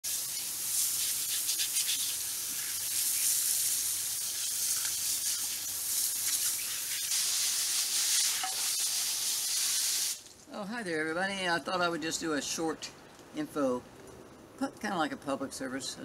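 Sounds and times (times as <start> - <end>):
hose spray hissing and splashing: 0.0 - 10.3.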